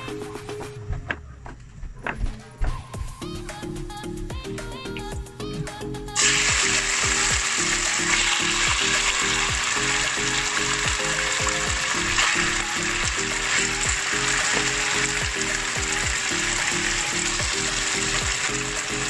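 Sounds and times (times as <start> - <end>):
background music with steady beat: 0.0 - 19.0
meat sizzling in hot oil: 6.2 - 19.0.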